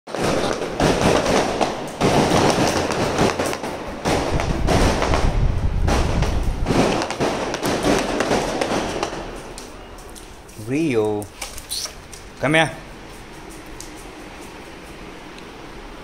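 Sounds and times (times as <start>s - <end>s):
firecrackers crackling: 0.1s - 15.3s.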